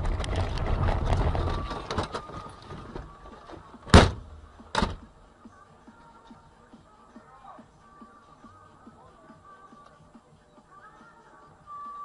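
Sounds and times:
vehicle and road rumble: 0.0 - 5.4
loud thumps: 3.8 - 5.1.

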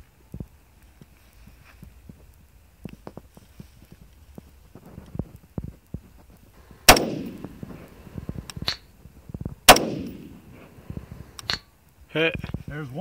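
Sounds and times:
rifle shots with ringing echo: 6.7 - 8.9, 9.6 - 11.6.

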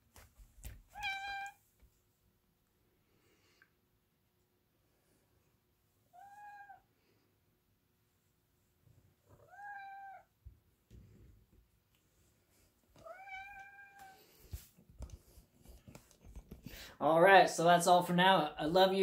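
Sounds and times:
cat meowing: 0.9 - 1.6, 6.1 - 6.9, 9.3 - 10.3, 13.0 - 14.2.

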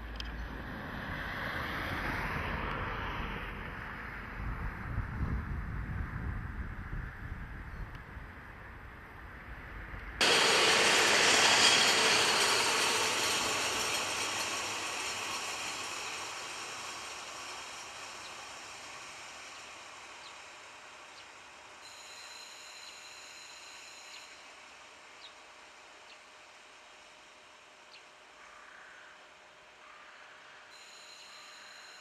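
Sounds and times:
diesel railcar engine: 0.0 - 32.0
train wheels on rails: 10.2 - 28.4.

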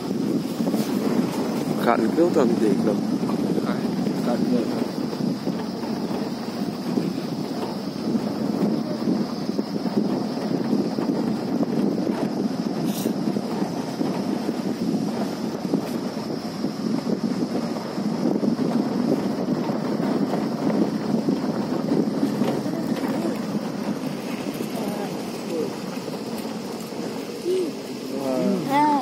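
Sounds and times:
wind buffeting microphone: 0.0 - 29.0.

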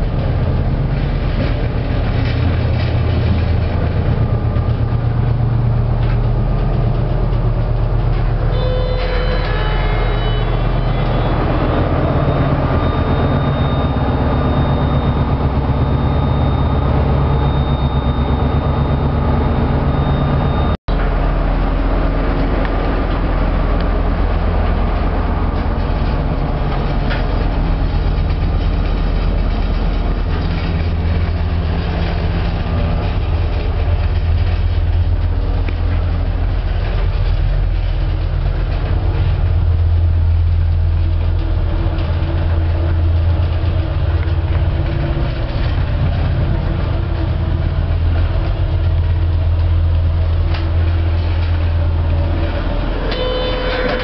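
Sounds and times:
lift travelling rumble: 0.0 - 54.0
ship engines running: 0.0 - 54.0
thin high whine: 8.3 - 20.8, 50.5 - 54.0.

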